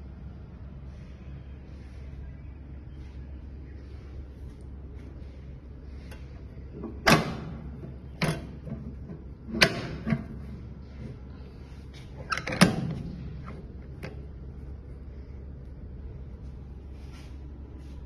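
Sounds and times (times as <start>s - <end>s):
steady low hum: 0.0s - 18.0s
metal door clunks and knocks: 6.8s - 10.4s.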